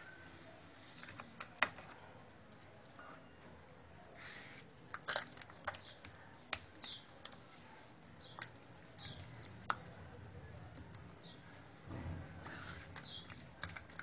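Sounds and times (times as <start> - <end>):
hands slapping dough: 4.9 - 7.5.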